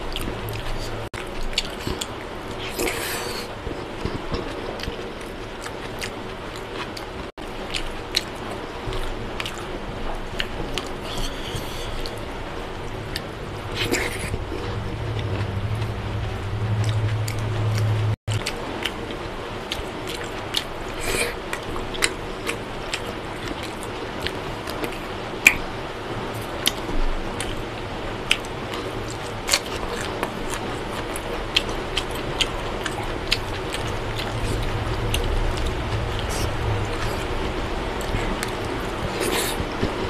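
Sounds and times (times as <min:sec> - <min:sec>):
person chewing with lip smacks: 0:00.1 - 0:07.1, 0:38.0 - 0:40.0
low hum: 0:09.9 - 0:18.5, 0:31.2 - 0:40.0.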